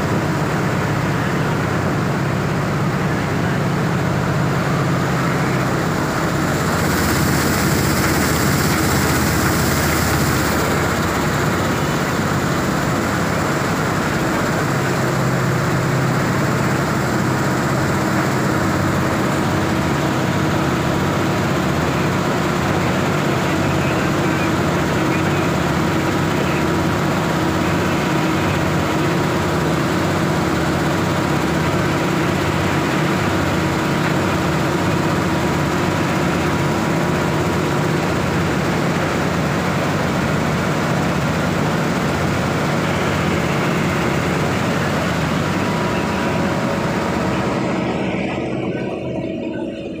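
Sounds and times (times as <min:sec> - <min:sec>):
industrial machinery hum and rumble: 0:00.0 - 0:50.0.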